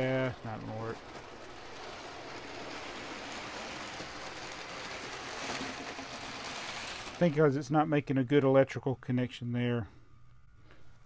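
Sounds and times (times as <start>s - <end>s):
model train motor and wheels: 0.0s - 7.9s.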